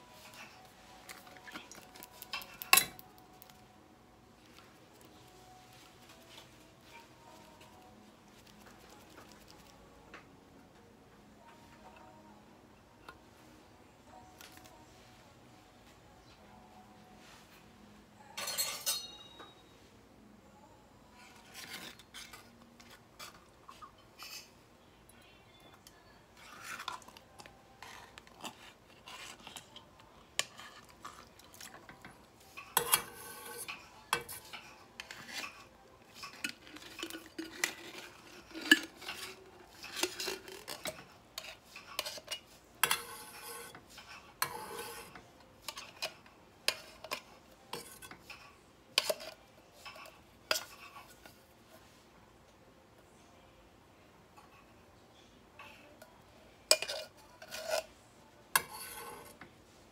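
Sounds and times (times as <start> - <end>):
metal clinking on pan: 18.4 - 19.6
spoon scraping tin can: 32.6 - 48.4, 56.7 - 57.9, 58.6 - 59.4.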